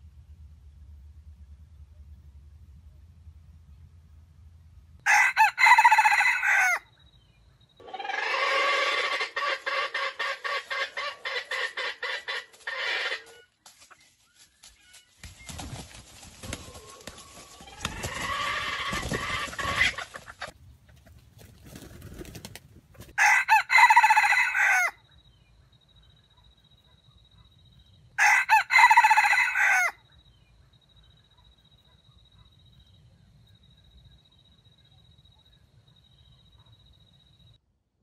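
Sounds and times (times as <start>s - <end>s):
rooster crowing: 5.0s - 6.9s, 7.8s - 13.4s, 16.6s - 20.0s, 23.2s - 25.0s, 28.2s - 30.0s.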